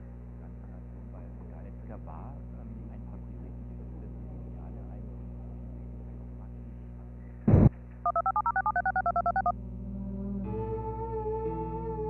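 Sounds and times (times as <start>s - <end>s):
electrical hum: 0.0s - 10.4s
telephone dialing tones: 8.1s - 9.5s.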